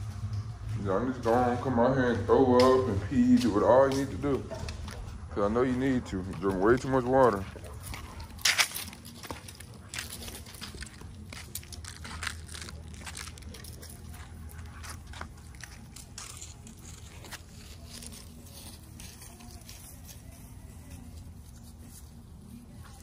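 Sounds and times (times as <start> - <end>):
dry leaves crunching underfoot: 6.3 - 22.8.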